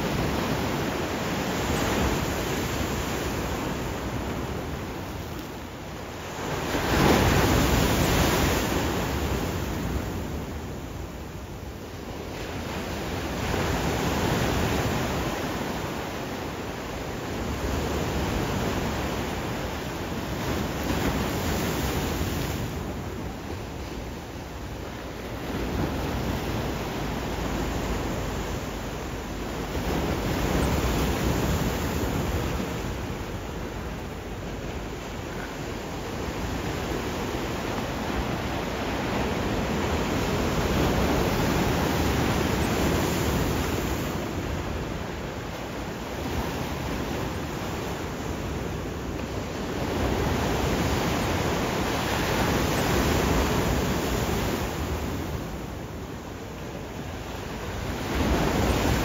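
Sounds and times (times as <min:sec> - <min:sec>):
ocean waves breaking: 0:00.0 - 0:59.0.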